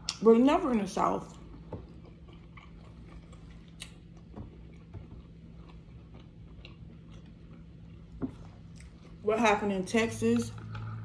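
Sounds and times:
steady low hum: 0.0s - 11.0s
chewing food: 1.2s - 9.2s, 10.4s - 11.0s.

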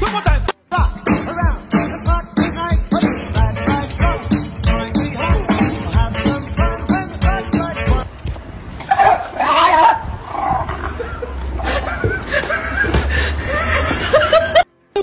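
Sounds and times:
dog howling: 9.0s - 10.8s.

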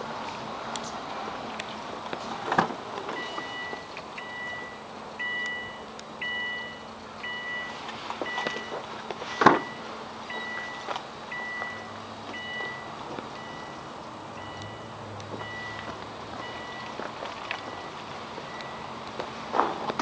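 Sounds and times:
car key-reminder chime beeping: 3.1s - 19.1s.

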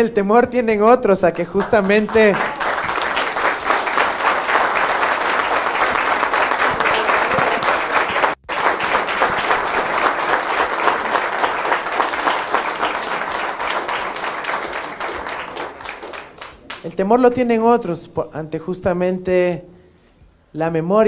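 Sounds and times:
people applauding: 1.4s - 17.0s.

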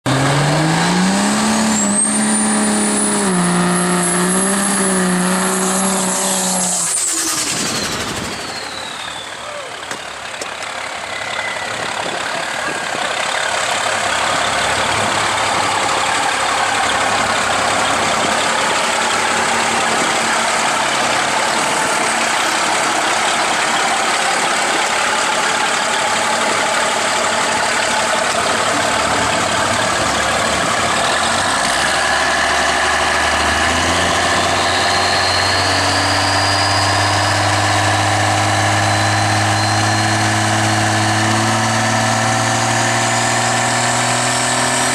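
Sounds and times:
loud diesel truck engine: 0.0s - 44.9s.

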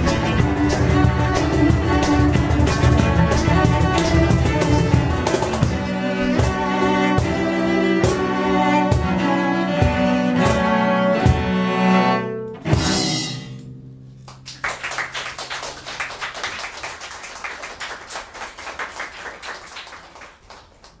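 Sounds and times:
audience clapping: 0.0s - 5.7s, 14.2s - 21.0s
cellos playing accented chords: 0.0s - 14.1s.

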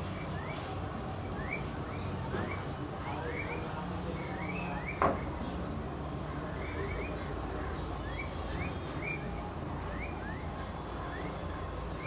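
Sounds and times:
sparrows chirping: 0.0s - 12.0s.

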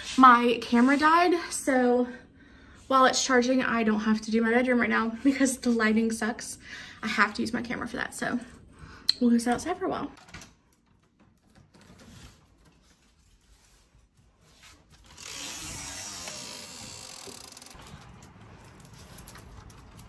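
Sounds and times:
outdoor wind noise: 14.2s - 20.0s
door opening: 15.0s - 20.0s
handling rustles and clicks: 17.6s - 20.0s.

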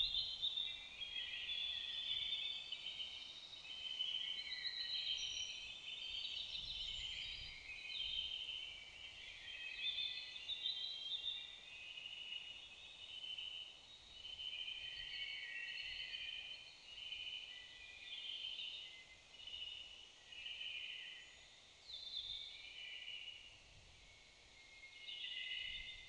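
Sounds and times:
songbirds singing: 0.0s - 26.0s.

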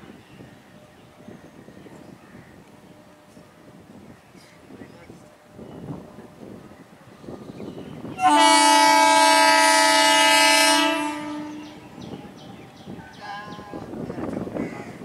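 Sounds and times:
train horn blast: 8.2s - 11.9s, 13.2s - 14.0s.

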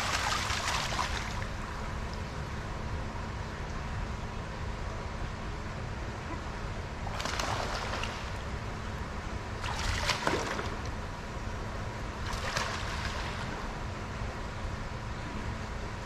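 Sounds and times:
water splashing in a pool: 0.0s - 2.2s, 7.0s - 8.4s, 9.6s - 10.9s, 12.2s - 13.6s.

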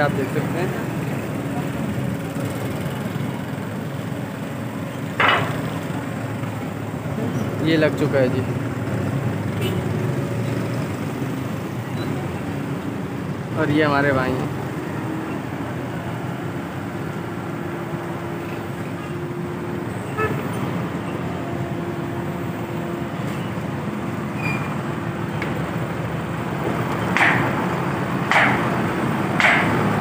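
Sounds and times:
construction machinery: 0.0s - 30.0s
road traffic: 0.0s - 30.0s
hammer strikes: 5.2s - 5.7s, 26.6s - 30.0s.

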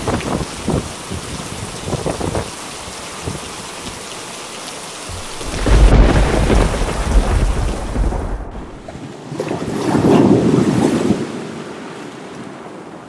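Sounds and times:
rain falling: 0.0s - 9.0s
deep rumble of thunder: 5.1s - 8.9s.

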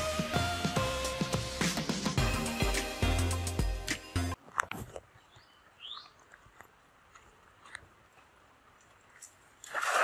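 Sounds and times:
cast net splashing into water: 9.6s - 10.0s.

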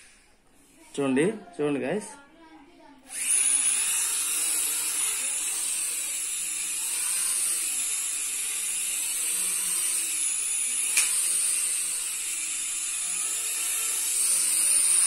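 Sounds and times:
toy drone propellers whining: 3.1s - 15.0s.

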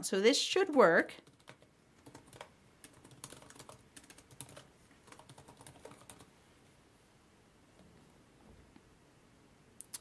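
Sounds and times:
typing on a keyboard: 0.7s - 6.3s.

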